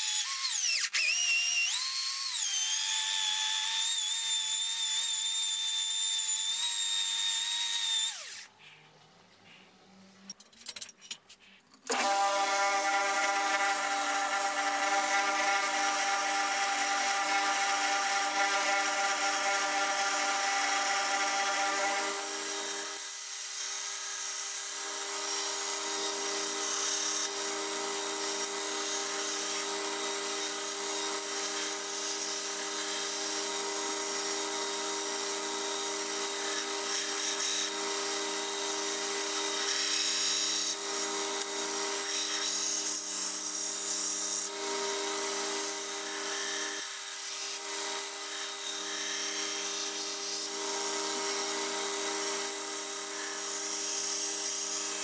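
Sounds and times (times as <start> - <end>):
belt grinder motor hum: 11.9 - 22.9.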